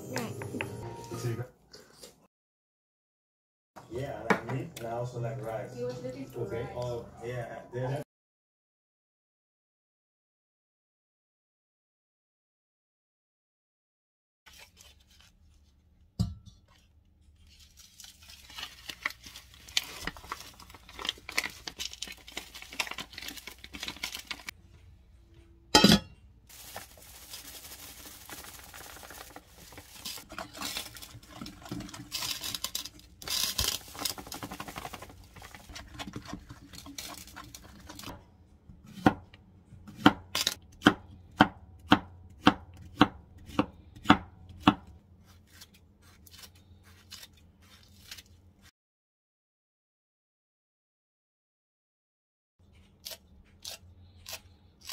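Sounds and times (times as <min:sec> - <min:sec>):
kitchen handling and rustling: 0:25.7 - 0:38.3
knife chopping on wooden board: 0:38.8 - 0:44.9.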